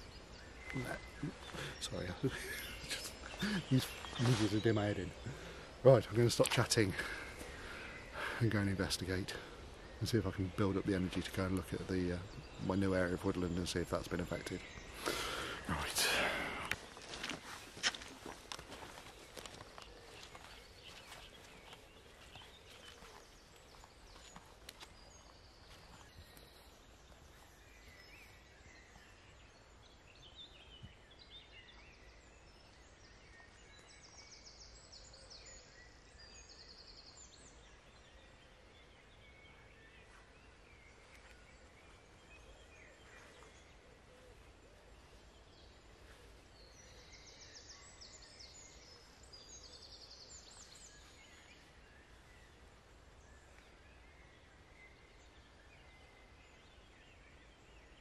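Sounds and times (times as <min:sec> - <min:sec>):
songbirds chirping and trilling: 0:00.0 - 0:58.0
footsteps on forest floor: 0:00.6 - 0:05.3, 0:14.6 - 0:28.3.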